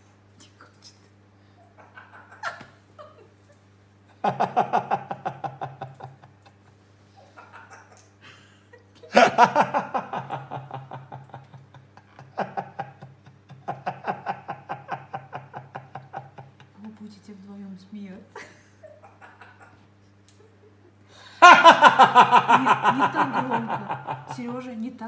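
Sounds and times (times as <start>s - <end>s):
parrot imitating laughter: 1.7s - 3.3s, 7.2s - 8.2s, 18.8s - 19.9s.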